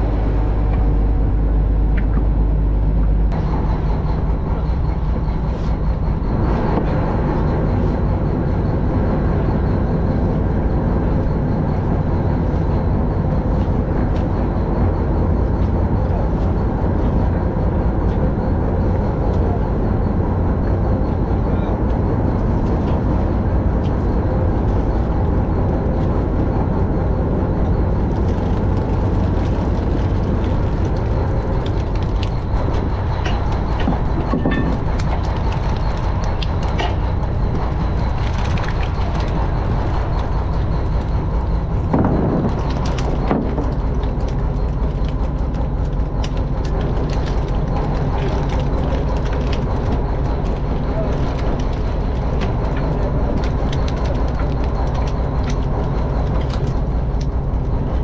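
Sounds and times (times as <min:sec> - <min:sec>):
boat engine droning: 0:00.0 - 0:58.0
fish knocking and clattering: 0:28.2 - 0:57.8.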